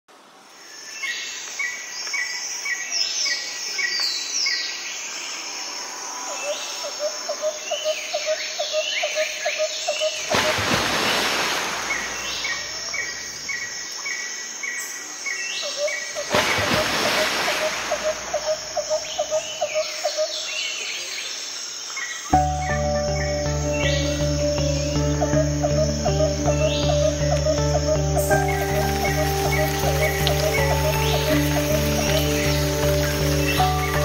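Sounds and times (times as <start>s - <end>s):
bird chirping: 17.5s - 21.4s, 22.0s - 34.0s
high bird calls sweeping downward: 22.2s - 34.0s
insect-like ticks: 27.2s - 34.0s.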